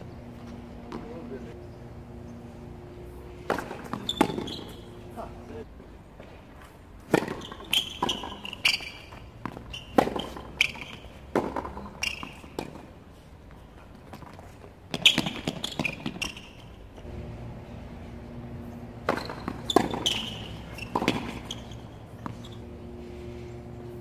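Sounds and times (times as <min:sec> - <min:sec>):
ball bouncing on hard court: 0:00.8 - 0:01.3, 0:03.4 - 0:05.0, 0:07.1 - 0:12.8, 0:14.9 - 0:16.6, 0:19.0 - 0:22.6
tennis ball hit by rackets: 0:03.3 - 0:05.0, 0:07.0 - 0:12.9, 0:19.0 - 0:22.5.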